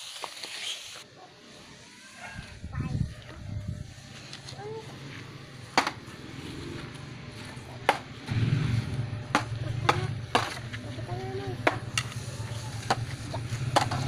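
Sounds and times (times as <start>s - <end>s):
low hum: 8.2s - 14.0s.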